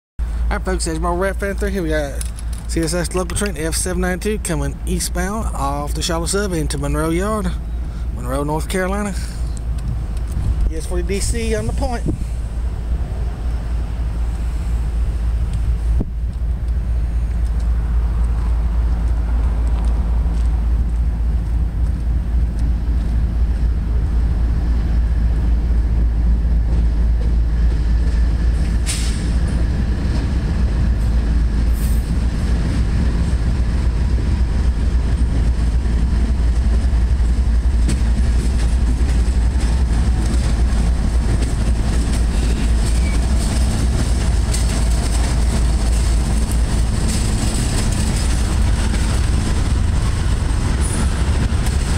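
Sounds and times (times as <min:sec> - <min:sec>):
diesel locomotives droning: 0:00.2 - 0:51.9
train wheels clicking over rails: 0:01.4 - 0:03.9, 0:25.2 - 0:51.9.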